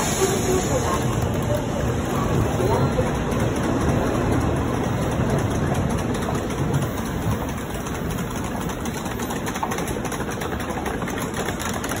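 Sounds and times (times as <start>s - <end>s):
train rushing past: 0.0s - 11.6s.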